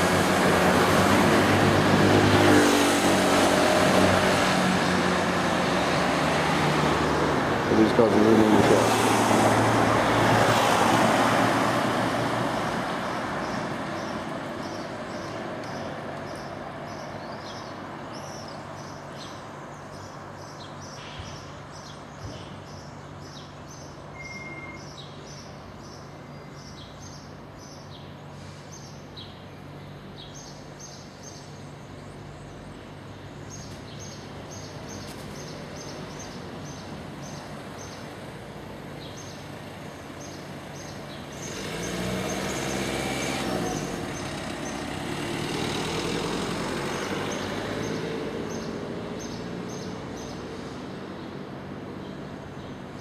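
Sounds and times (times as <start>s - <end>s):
vehicle passing close by: 0.0s - 18.9s, 33.9s - 51.9s
city street traffic: 0.0s - 53.0s
small bird chirping: 20.0s - 28.1s.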